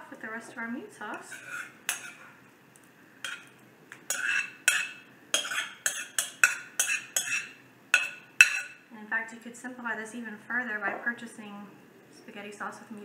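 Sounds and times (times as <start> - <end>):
spoon clinking on ceramic bowl: 4.1 - 8.8.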